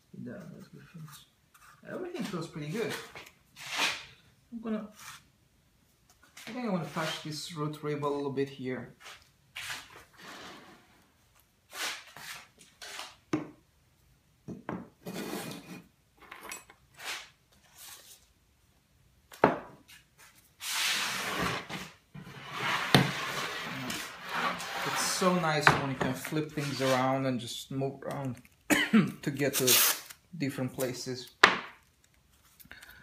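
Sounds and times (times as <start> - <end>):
sanding block rubbing wood: 22.4 - 25.3.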